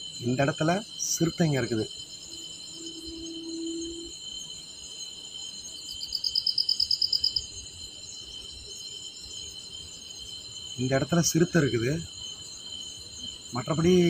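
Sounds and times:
crickets chirring: 0.0 - 14.0
insect pulsed trill: 0.0 - 14.0.

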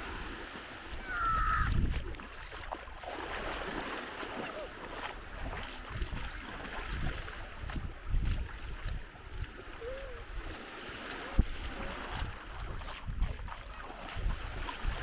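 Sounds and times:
sea waves: 0.0 - 15.0
wind gusting on microphone: 1.0 - 2.2.

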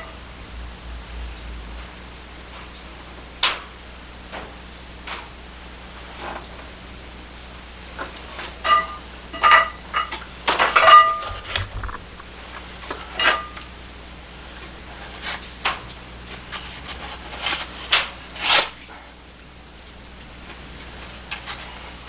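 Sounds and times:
scraping and rustling handling noises: 19.8 - 22.0.

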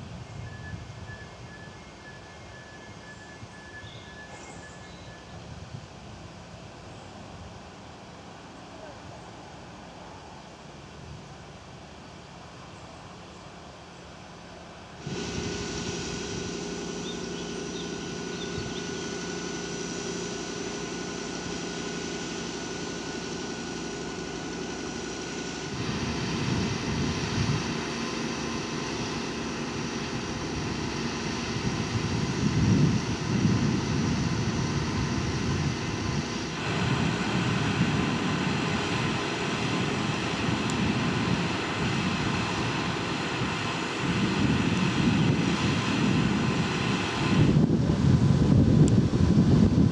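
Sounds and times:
diesel engines humming: 0.0 - 49.9
wind buffeting microphone: 15.0 - 49.9.

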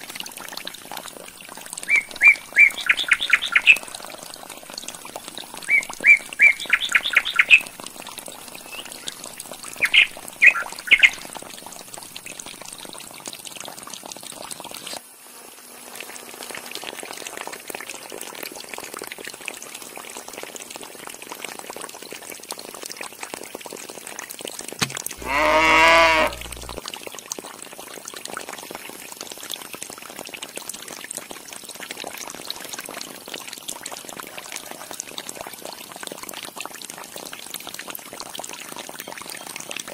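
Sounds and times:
water trickling into clay pot: 0.0 - 15.0, 16.5 - 39.9
cow mooing: 24.8 - 26.8
birds chirping: 24.9 - 26.8.

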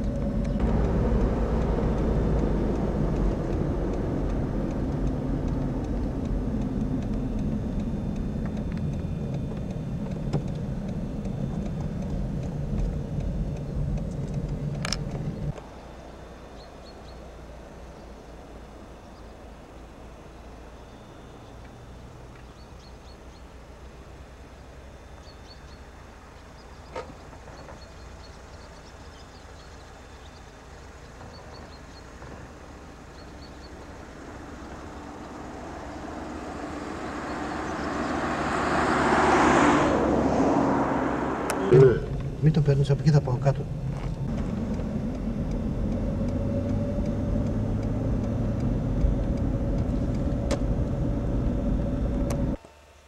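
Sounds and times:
faint steady tone: 0.0 - 38.8
steady low rumble: 0.0 - 52.6
car engine and tyre drone: 0.0 - 53.0
motor vehicle: 0.0 - 53.0.

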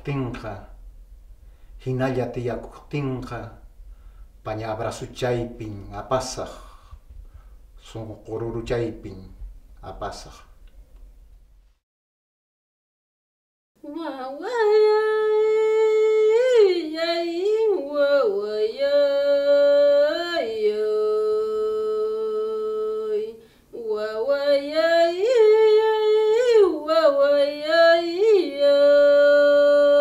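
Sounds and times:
person singing wordless melody: 13.8 - 30.0.

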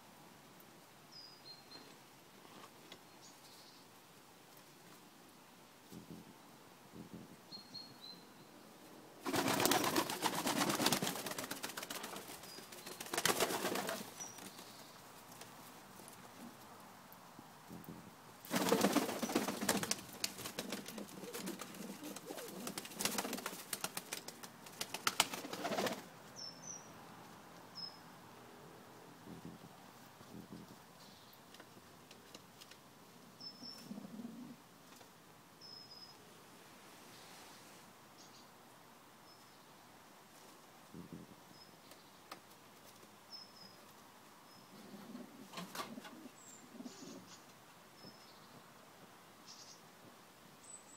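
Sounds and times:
rustle: 0.0 - 50.9
pigeons flapping wings: 9.2 - 14.6, 18.5 - 26.1
pigeons cooing: 20.6 - 23.4
faint high bird chirps: 35.6 - 36.2.

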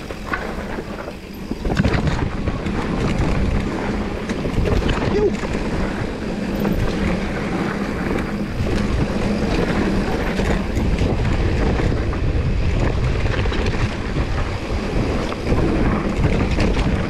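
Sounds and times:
bike rattles and clicks: 0.0 - 17.0
tyres rumbling over rough ground: 0.0 - 17.0
wind buffeting microphone: 0.0 - 17.0.

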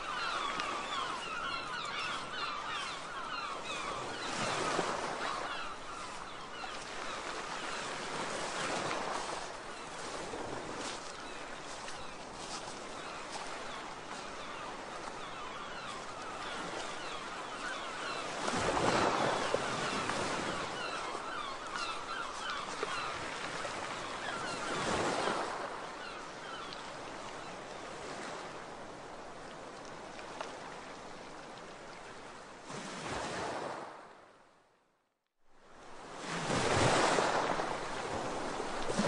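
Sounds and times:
sea waves washing in: 0.0 - 26.6, 35.9 - 39.0.

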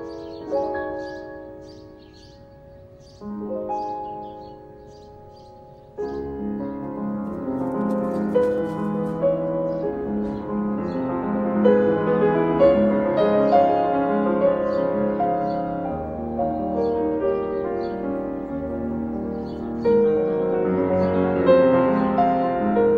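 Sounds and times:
classical piano music: 0.0 - 22.9.

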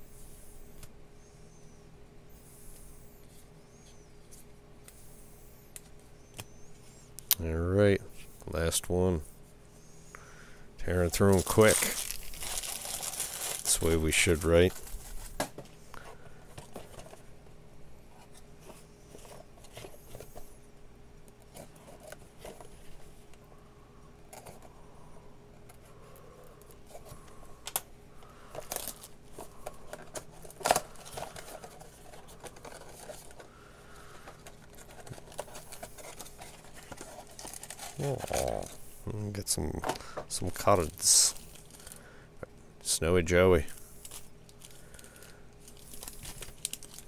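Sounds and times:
plastic shrink-wrap crinkling: 11.0 - 15.4, 28.6 - 33.4, 34.2 - 38.7, 40.8 - 42.0, 44.0 - 47.0.

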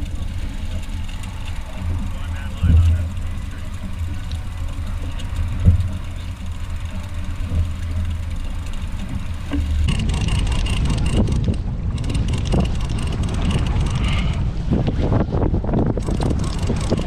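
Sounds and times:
outboard motor droning: 0.0 - 17.0
wind rushing on microphone: 9.8 - 17.0.

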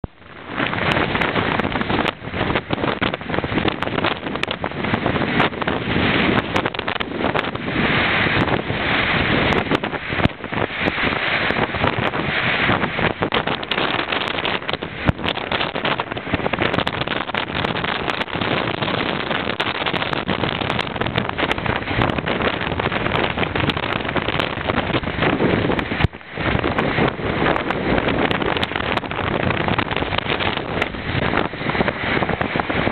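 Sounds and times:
surf breaking on rocks: 0.0 - 32.9
wind buffeting microphone: 0.0 - 32.9.

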